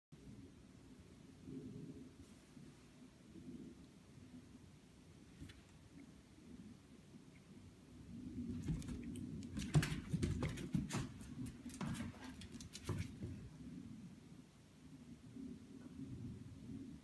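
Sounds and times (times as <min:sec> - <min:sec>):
dog claws tapping on wooden floor: 0:08.6 - 0:13.4.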